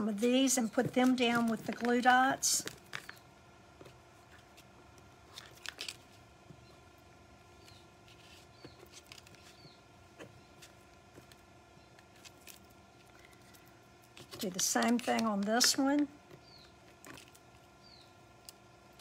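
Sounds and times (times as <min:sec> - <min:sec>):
faint room hum: 0:00.0 - 0:19.0
scissors snipping paper: 0:14.2 - 0:16.1.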